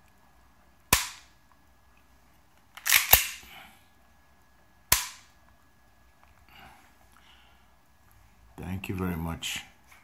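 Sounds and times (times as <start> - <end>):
airsoft pistol metallic clacks: 2.8 - 3.4.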